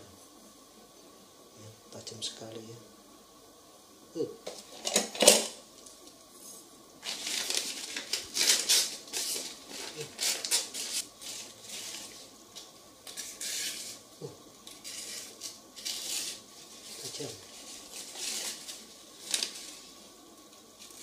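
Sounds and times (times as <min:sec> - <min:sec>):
paper wrapping rustling: 0:07.0 - 0:14.0, 0:14.7 - 0:21.0.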